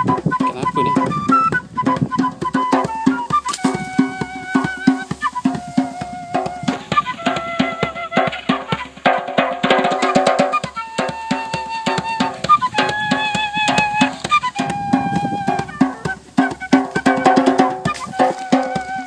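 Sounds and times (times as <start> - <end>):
djembe hand-drum rhythm: 0.0 - 19.0
flute melody: 0.0 - 19.0.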